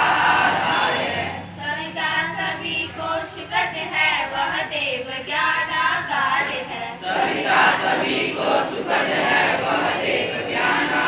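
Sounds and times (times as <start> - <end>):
girls singing into a microphone: 0.0 - 11.0.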